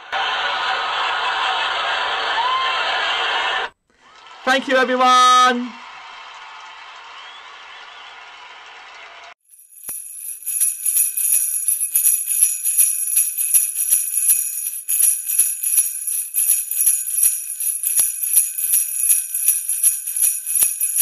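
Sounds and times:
sleigh bells jingling: 9.5 - 21.0.

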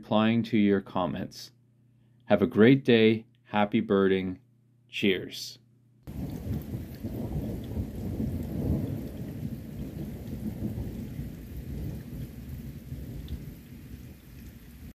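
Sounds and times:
thunder rumbling: 6.1 - 14.9
rain: 6.1 - 15.0.

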